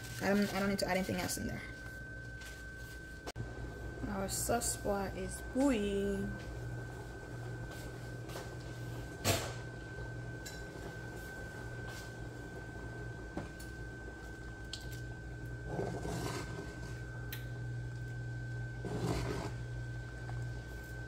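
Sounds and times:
steady kitchen hum: 0:00.0 - 0:21.0.

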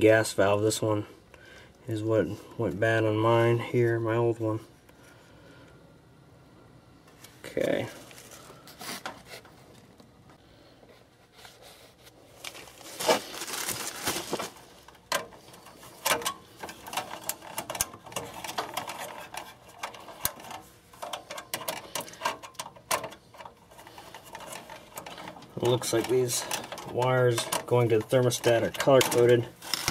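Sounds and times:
rustling: 0:10.8 - 0:29.9.

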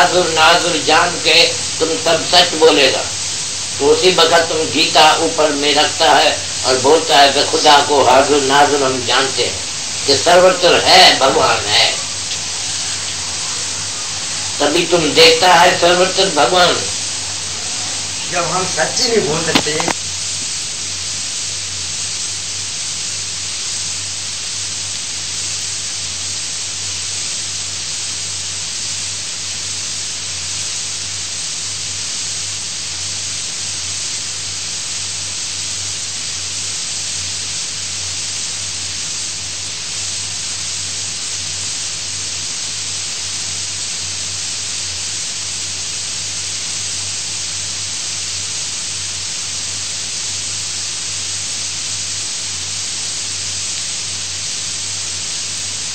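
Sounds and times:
low steady hum: 0:00.0 - 0:20.0
recording hiss: 0:00.0 - 0:55.9.

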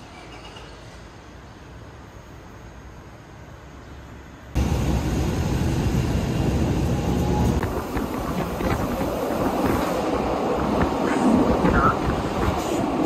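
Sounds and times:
train running rumble: 0:04.6 - 0:13.0.

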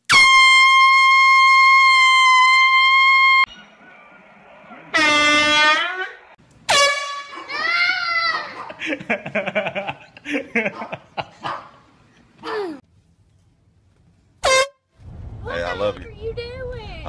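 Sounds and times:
air horn blast: 0:00.1 - 0:03.6, 0:04.9 - 0:07.3, 0:14.4 - 0:14.9.

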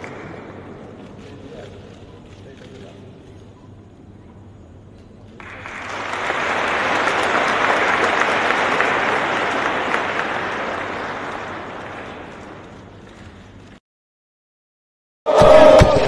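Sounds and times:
audience applauding: 0:00.0 - 0:00.5, 0:05.4 - 0:13.8.

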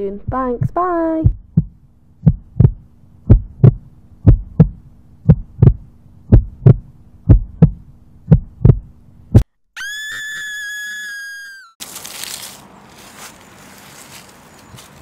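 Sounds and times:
faint steady hum: 0:00.0 - 0:09.4
heartbeat thumps: 0:00.1 - 0:09.5.

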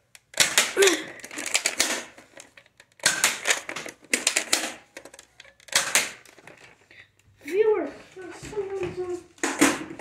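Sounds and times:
plastic toy blaster clicking: 0:00.1 - 0:06.4.

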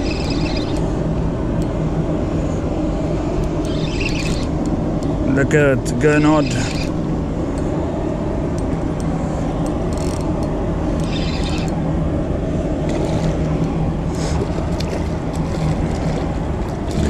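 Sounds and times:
spinning reel clicking: 0:00.0 - 0:00.8, 0:03.6 - 0:04.5, 0:11.0 - 0:11.8
low rumble with hum: 0:00.0 - 0:17.0.

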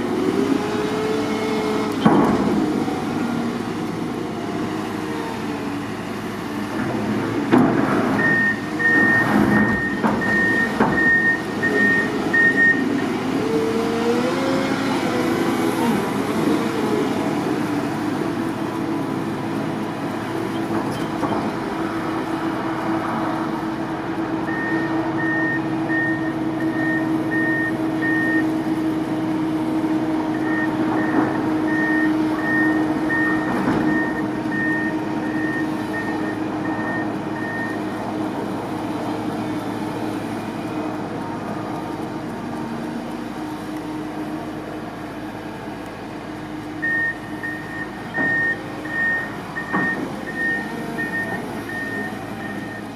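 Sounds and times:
wheel loader diesel engines running: 0:00.0 - 0:52.9
backup alarm beeping: 0:08.2 - 0:12.8, 0:46.8 - 0:52.9.

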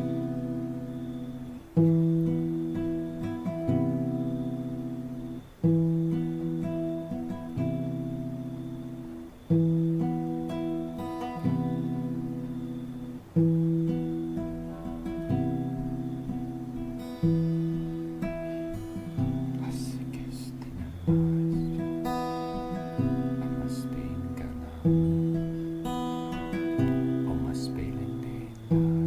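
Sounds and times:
acoustic guitar chords: 0:00.0 - 0:29.0.

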